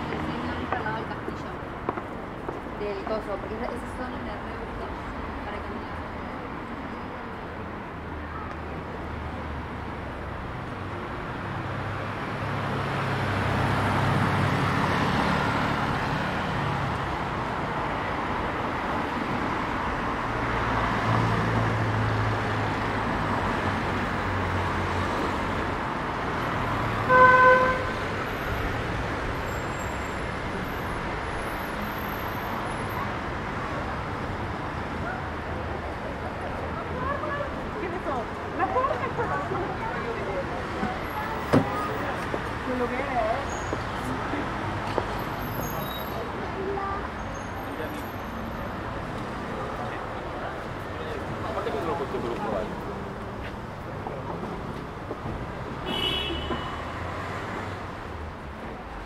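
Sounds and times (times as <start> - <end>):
cars driving past: 0.0 - 59.0
vehicle horn toot: 27.1 - 28.0, 55.8 - 56.8.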